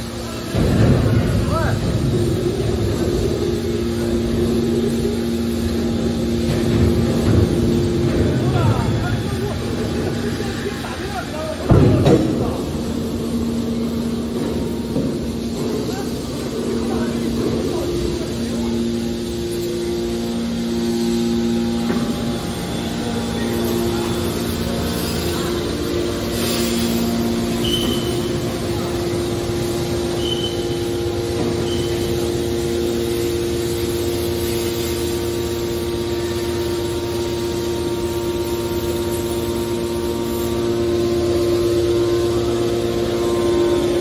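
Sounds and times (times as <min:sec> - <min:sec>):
hydraulic motor humming and whining: 0:00.0 - 0:44.0
short high squeaks: 0:27.6 - 0:28.3, 0:30.2 - 0:30.9.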